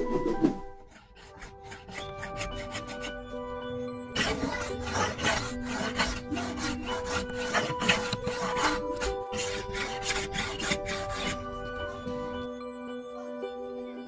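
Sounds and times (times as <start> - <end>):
background music with steady tones: 0.0 - 14.0
hand plane scraping wood: 0.8 - 3.4, 4.1 - 12.2.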